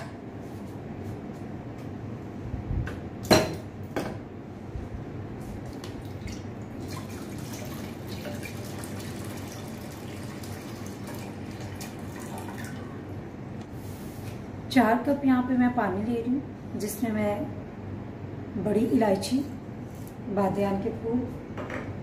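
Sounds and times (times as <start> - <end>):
water pouring into a pot: 6.0 - 13.0.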